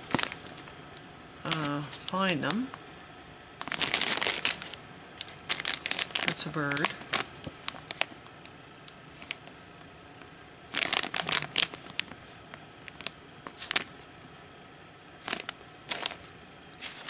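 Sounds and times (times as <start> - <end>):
plastic sleeves crinkling: 0.0 - 0.7, 1.4 - 2.8, 3.6 - 9.6, 10.2 - 14.4, 15.2 - 17.0.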